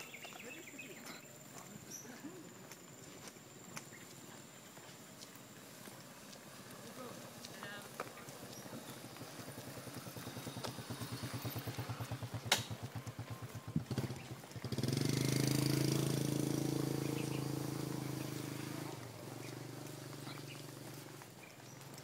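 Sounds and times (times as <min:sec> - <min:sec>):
small engine droning: 0:00.0 - 0:22.0.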